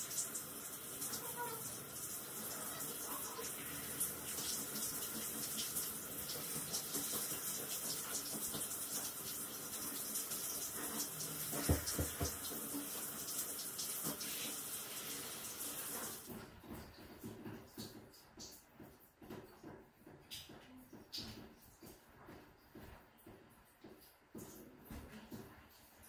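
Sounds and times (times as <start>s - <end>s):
shower spray hissing: 0.0s - 16.3s.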